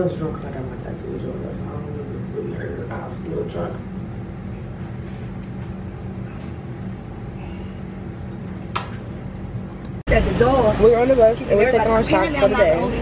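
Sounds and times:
low machine hum: 0.0s - 13.0s
sharp click: 8.7s - 9.0s.

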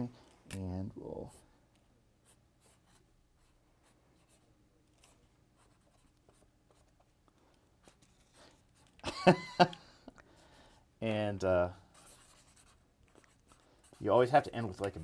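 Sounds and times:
pen scratching on paper: 2.2s - 7.2s, 7.8s - 8.9s, 11.9s - 14.4s
person laughing: 9.0s - 10.2s.

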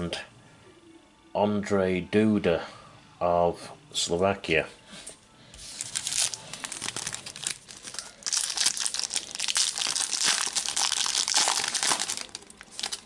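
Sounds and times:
foil wrapper tearing and crinkling: 5.6s - 13.0s.

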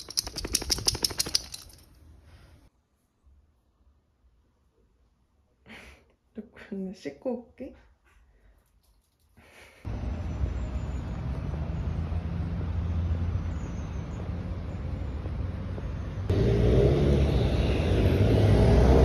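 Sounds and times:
street traffic rumble: 9.8s - 19.0s.

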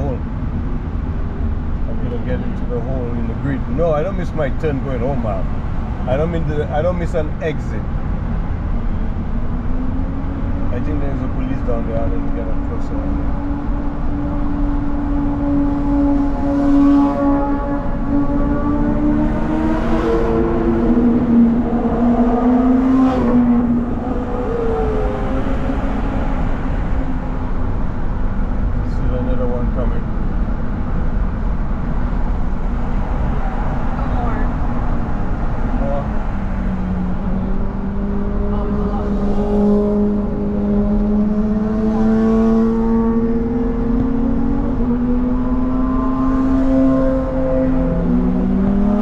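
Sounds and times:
highway traffic noise: 0.0s - 49.0s
road and tyre rumble: 0.0s - 49.0s
motorcycle engine droning: 12.5s - 28.9s, 33.3s - 49.0s.

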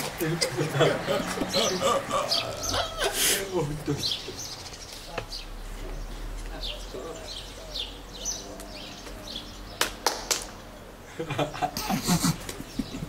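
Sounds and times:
people laughing: 0.1s - 4.6s, 11.0s - 13.0s
small birds chirping: 1.0s - 13.0s
sharp smacks: 9.8s - 10.5s.

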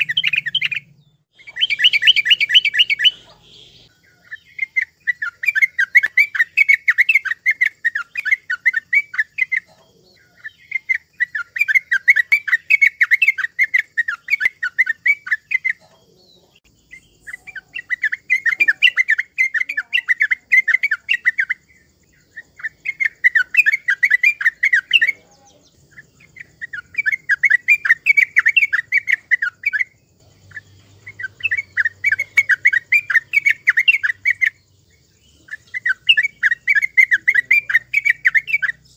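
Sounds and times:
bird chattering chirps: 0.0s - 38.9s.

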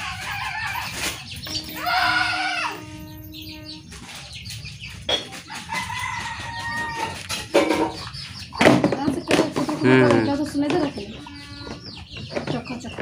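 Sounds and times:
rooster crowing: 0.0s - 3.8s, 5.5s - 7.4s.

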